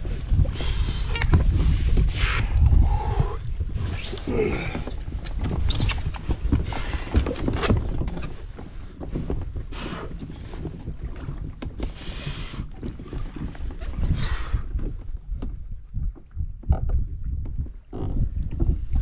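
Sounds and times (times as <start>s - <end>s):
water splashing against kayak hull: 0.0s - 19.0s
wind buffeting microphone: 0.0s - 19.0s.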